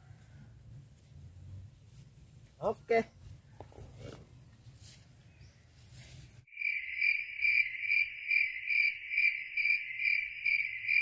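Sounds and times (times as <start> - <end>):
faint outdoor background: 0.0 - 11.0
crickets chirping: 6.5 - 11.0.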